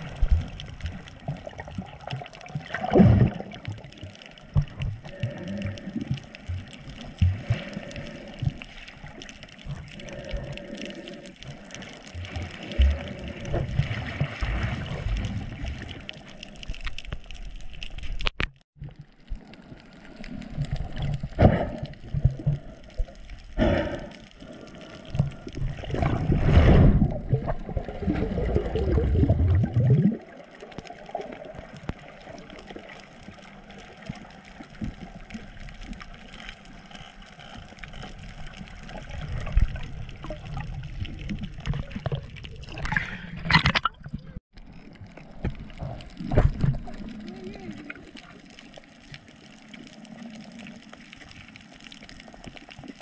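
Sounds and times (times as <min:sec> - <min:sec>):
water sloshing and gurgling: 0:00.0 - 0:53.0
water splashes: 0:00.0 - 0:53.0.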